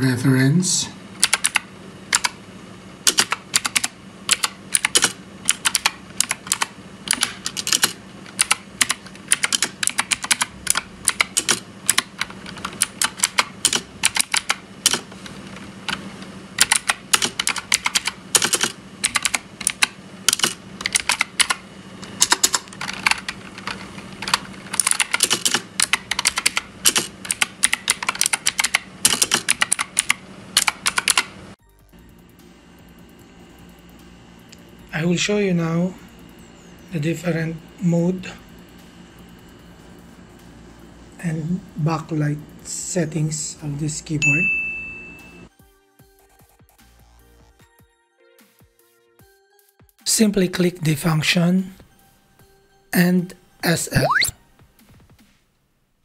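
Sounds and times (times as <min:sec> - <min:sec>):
mechanical keyboard typing: 0:01.2 - 0:02.4, 0:03.0 - 0:16.0, 0:16.6 - 0:31.3.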